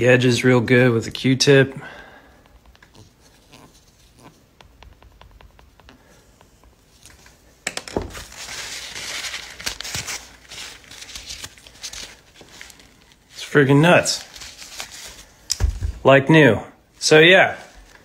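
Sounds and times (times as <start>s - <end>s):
cotton swab scrubbing lens: 2.3s - 7.5s.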